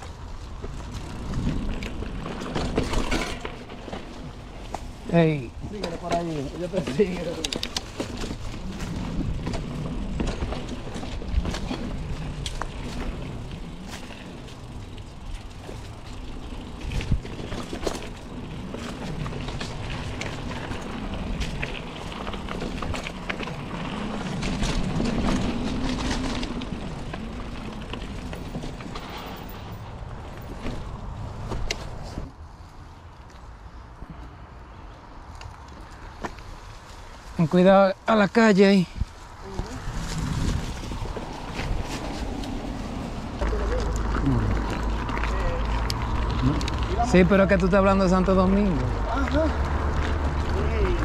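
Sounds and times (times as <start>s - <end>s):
bike rattling over bumps: 0.0s - 32.4s, 35.3s - 51.0s
bike tyres rumbling on dirt: 0.0s - 33.9s, 34.7s - 51.0s.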